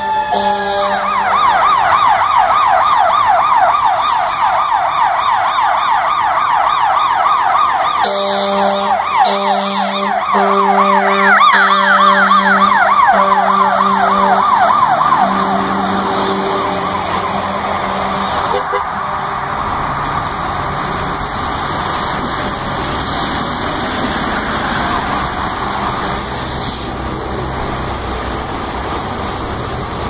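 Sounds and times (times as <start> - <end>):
fire engine horn blasts: 0.0 - 2.5, 8.0 - 19.0
second quicker siren: 0.0 - 18.8
fire engine siren yelping: 0.0 - 30.0.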